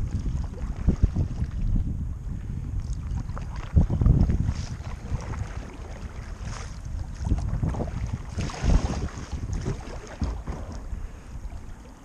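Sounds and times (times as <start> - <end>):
water splashing against hull: 0.0 - 12.0
wind rumbling on microphone: 0.0 - 12.0
paddle strokes: 2.8 - 12.0.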